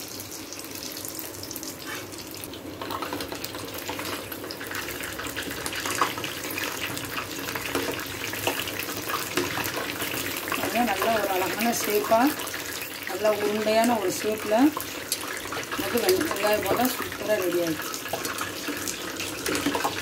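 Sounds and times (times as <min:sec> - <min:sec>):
food deep-frying in oil: 0:00.0 - 0:20.0.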